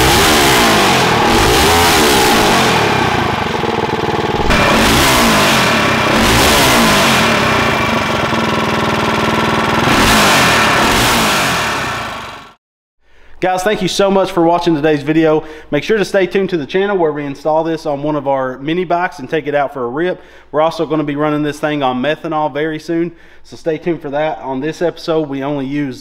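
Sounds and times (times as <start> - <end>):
small engine revving: 0.0 - 12.6.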